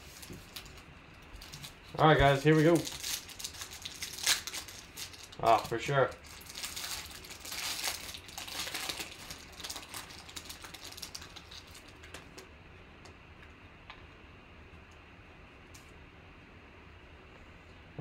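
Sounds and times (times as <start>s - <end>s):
foil wrapper crinkling: 0.0s - 12.4s.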